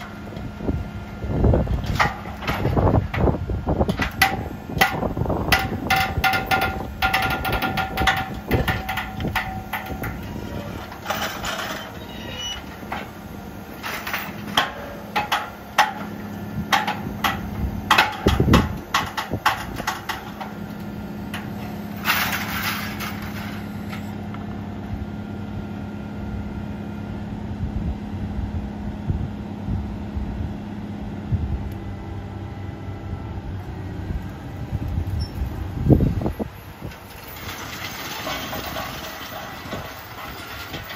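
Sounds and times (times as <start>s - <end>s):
diesel engine running: 0.0s - 40.9s
metal clanks and rattles: 1.6s - 24.1s, 36.1s - 40.9s.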